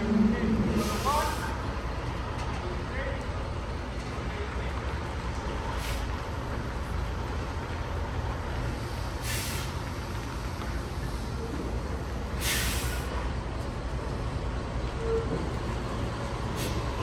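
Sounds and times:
diesel truck rumble: 0.0 - 17.0
air brake hiss: 0.7 - 1.6, 5.8 - 6.1, 9.0 - 9.8, 12.4 - 13.2, 16.5 - 17.0.

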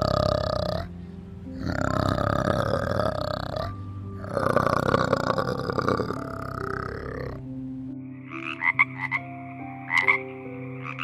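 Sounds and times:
orangutan calling: 1.6 - 7.4.

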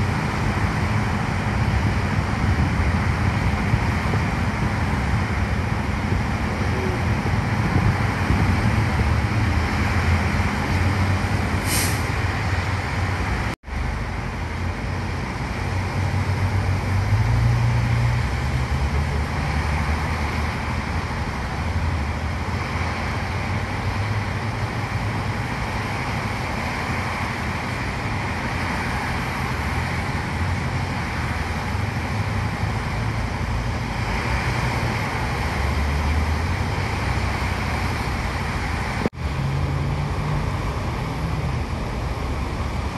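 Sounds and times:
low hum of engines: 0.0 - 42.9
tyres hissing on wet road: 0.0 - 42.9
short high hiss: 11.6 - 12.1.

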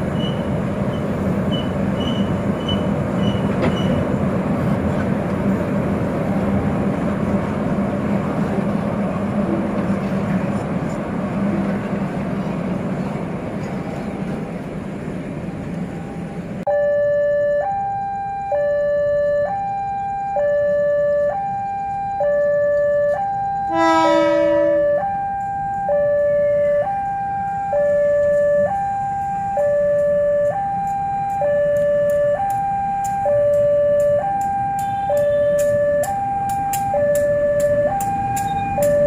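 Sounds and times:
train rumbling over steel bridge: 0.0 - 16.7, 20.7 - 39.0
level crossing warning alarm: 16.0 - 39.0
locomotive horn: 23.6 - 25.2.

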